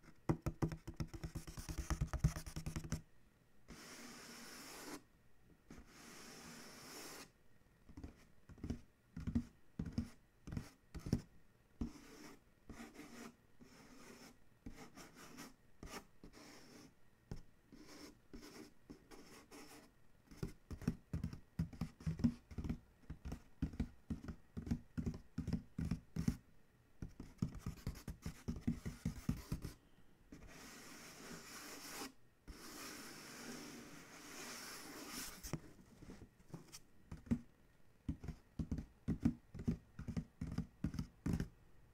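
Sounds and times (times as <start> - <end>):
fingertips tapping on cardboard: 0.0 - 3.0, 7.9 - 12.0, 20.3 - 26.4, 27.0 - 29.8, 36.5 - 41.6
fingernails scratching cardboard: 30.4 - 35.6.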